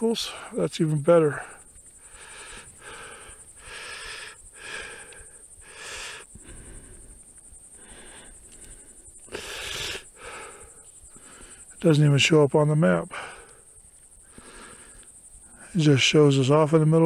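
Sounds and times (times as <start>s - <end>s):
person breathing hard: 1.4s - 11.8s, 13.1s - 15.2s.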